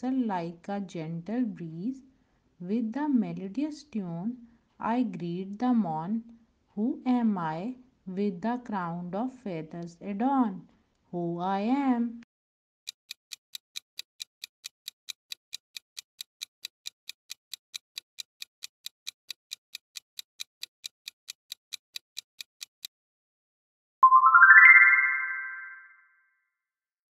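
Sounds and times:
clock ticking: 0:12.9 - 0:22.9
bright rising chime: 0:24.0 - 0:26.2.

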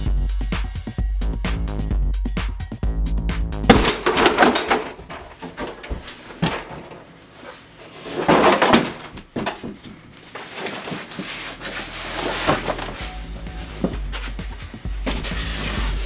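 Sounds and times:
rustling and scraping of pad: 0:04.3 - 0:09.1, 0:09.8 - 0:16.0
footsteps: 0:04.5 - 0:07.8, 0:09.6 - 0:15.3.

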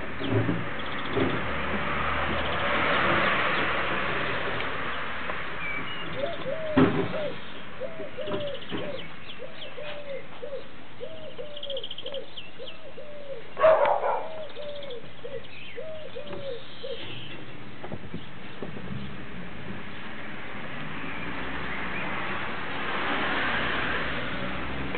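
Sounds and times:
dove cooing: 0:06.1 - 0:17.2.

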